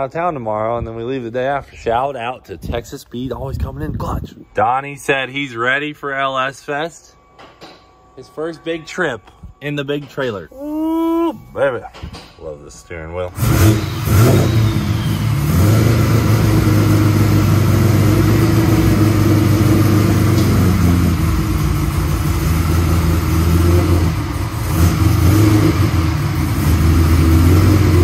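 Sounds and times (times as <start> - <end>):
car engine running at low revs: 13.4 - 28.0.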